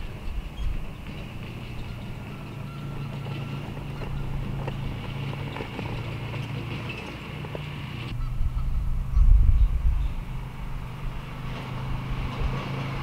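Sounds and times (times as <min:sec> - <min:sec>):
steady low hum: 0:00.0 - 0:12.0
wind buffeting microphone: 0:00.0 - 0:13.0.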